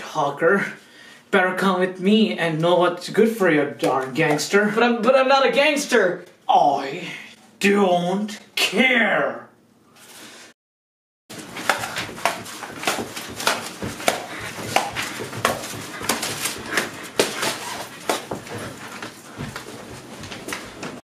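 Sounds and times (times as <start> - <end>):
person panting while running: 11.4 - 20.9.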